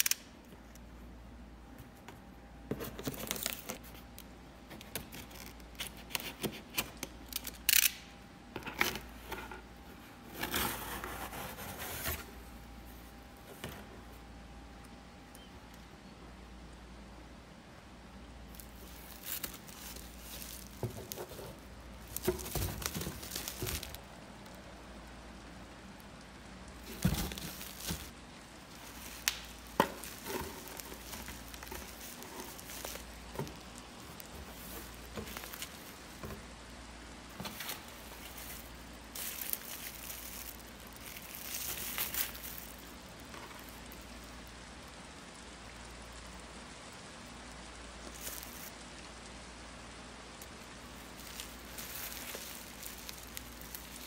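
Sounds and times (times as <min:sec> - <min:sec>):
bubble wrap crinkling: 0:00.0 - 0:08.2, 0:18.3 - 0:44.9, 0:47.3 - 0:49.4, 0:50.2 - 0:54.0.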